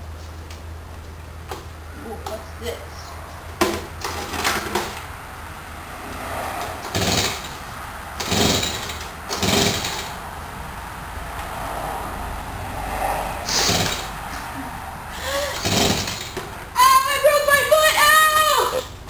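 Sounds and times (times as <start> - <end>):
starter cord rasping pulls: 15.4 - 16.4.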